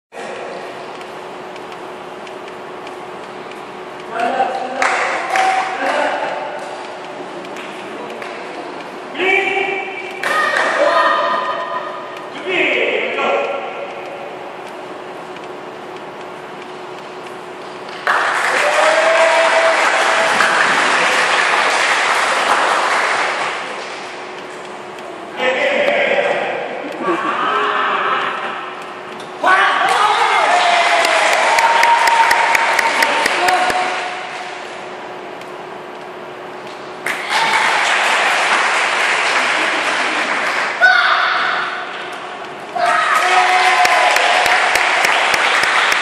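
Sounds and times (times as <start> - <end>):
children clapping and calling out: 4.8 - 6.1, 29.9 - 34.1, 37.1 - 41.5, 42.7 - 46.0
group applauding: 4.8 - 6.3, 17.9 - 24.1, 29.9 - 34.5, 37.0 - 40.8, 42.8 - 46.0.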